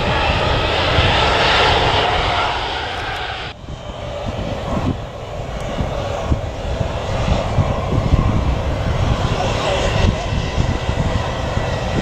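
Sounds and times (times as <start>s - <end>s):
aircraft engines rumbling: 0.0s - 12.0s.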